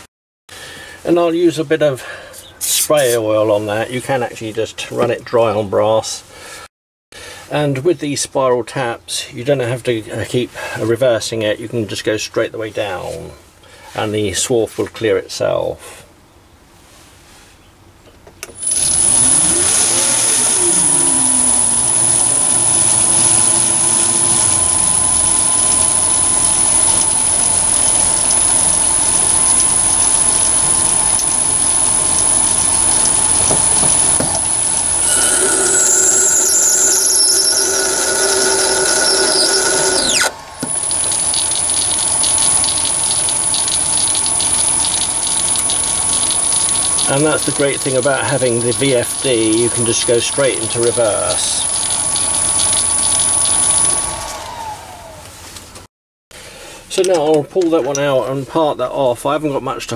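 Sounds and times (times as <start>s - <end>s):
lathe motor whining: 18.5s - 47.1s, 51.6s - 55.3s
squealing tones of tap cutting: 33.0s - 41.2s.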